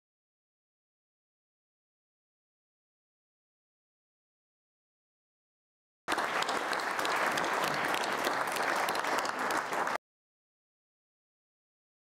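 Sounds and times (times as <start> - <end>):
audience applauding: 6.1 - 10.0.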